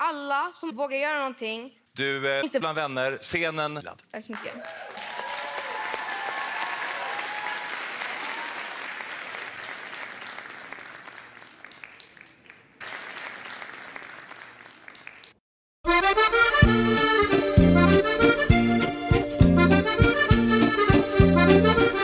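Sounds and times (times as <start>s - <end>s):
studio audience applauding: 4.3s - 15.4s.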